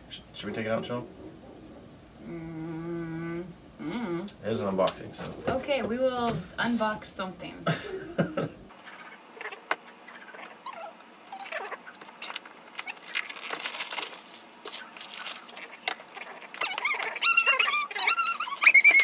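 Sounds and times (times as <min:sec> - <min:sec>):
cardboard box being unpacked: 0:12.9 - 0:15.8
high-pitched squeaky whining: 0:16.3 - 0:19.0.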